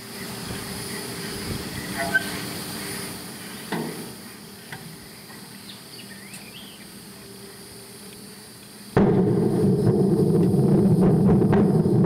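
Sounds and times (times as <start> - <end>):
faint high wildlife chirps: 0.0 - 9.0
outdoor hiss: 0.0 - 12.0.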